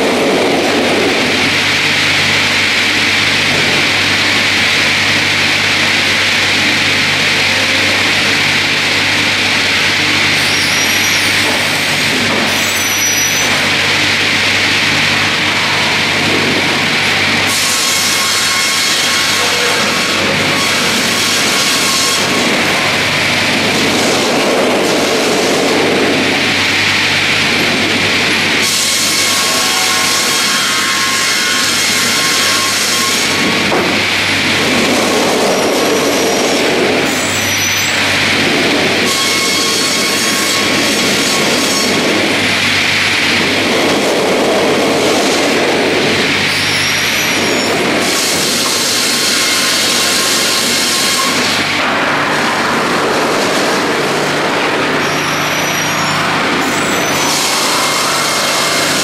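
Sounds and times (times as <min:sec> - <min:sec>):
carriages rumbling along rail: 0:00.0 - 0:59.0
circular saw blades cutting log: 0:16.8 - 0:25.5, 0:28.6 - 0:38.2, 0:54.9 - 0:59.0.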